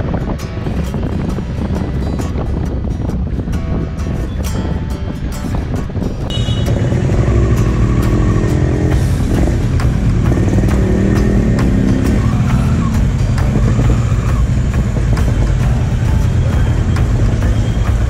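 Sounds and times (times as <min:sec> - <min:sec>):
background music: 0:00.0 - 0:18.0
motorcycle engine at low revs: 0:06.3 - 0:18.0.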